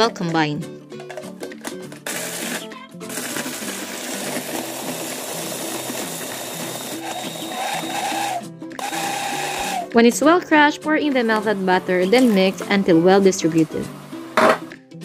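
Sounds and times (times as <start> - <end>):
food processor grinding biscuits: 2.0 - 10.0.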